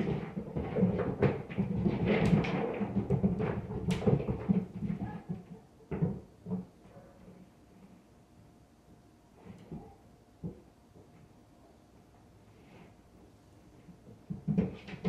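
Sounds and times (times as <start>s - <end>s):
thumping through ceiling: 0.0s - 7.0s, 13.8s - 15.0s.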